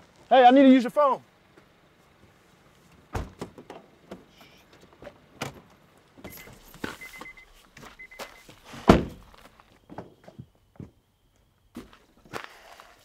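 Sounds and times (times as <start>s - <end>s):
car door slamming: 3.1s - 4.3s, 8.7s - 9.4s
car door warning chime: 6.2s - 8.5s.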